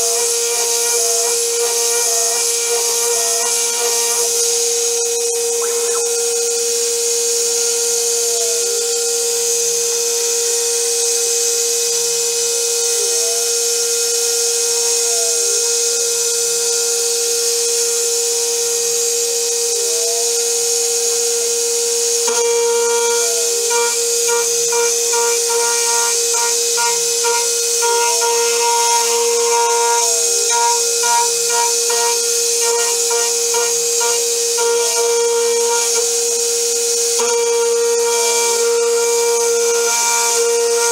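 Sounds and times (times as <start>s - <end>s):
chattering cutting tone: 0.0s - 6.6s, 22.4s - 36.3s, 37.2s - 40.9s
end mill cutting metal: 0.0s - 7.3s, 22.3s - 40.9s
steady hiss: 0.0s - 18.4s, 19.4s - 40.9s
cnc spindle whining: 0.0s - 40.9s.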